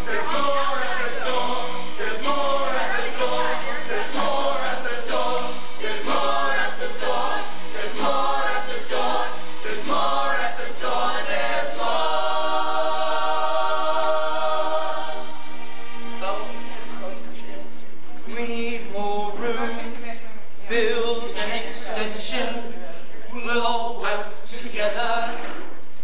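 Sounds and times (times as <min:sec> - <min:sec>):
mixed chorus singing: 0:00.0 - 0:16.2.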